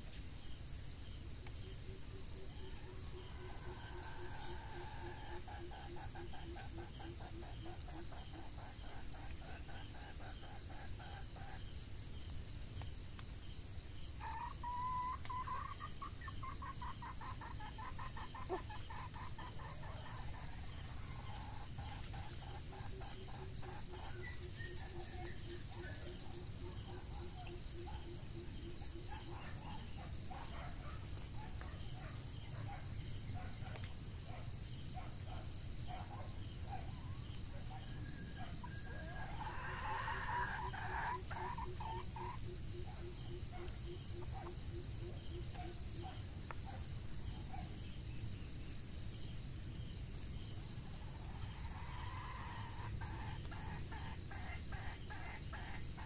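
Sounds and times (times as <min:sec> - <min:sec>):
high insect trill: 0:00.0 - 0:56.0
junglefowl clucking: 0:02.4 - 0:11.7, 0:14.2 - 0:32.2, 0:37.6 - 0:46.2, 0:51.2 - 0:56.0.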